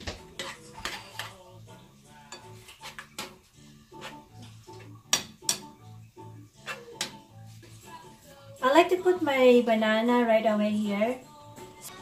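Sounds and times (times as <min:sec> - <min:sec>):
fork scraping a frying pan: 0:00.2 - 0:05.8, 0:06.5 - 0:07.8
fork tapping a pan: 0:00.3 - 0:01.4, 0:04.0 - 0:05.8, 0:06.6 - 0:07.3.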